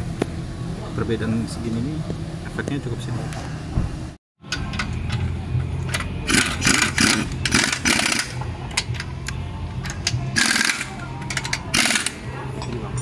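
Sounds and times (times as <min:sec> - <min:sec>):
steady low hum: 0:00.0 - 0:13.0
pneumatic impact wrench bursts: 0:06.3 - 0:08.4, 0:10.4 - 0:10.9, 0:11.7 - 0:12.2.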